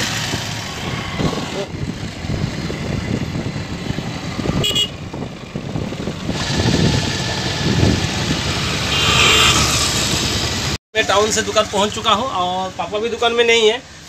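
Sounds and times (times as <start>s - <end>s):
wind and road noise: 0.0s - 10.8s
vehicle horn toot: 4.6s - 5.0s.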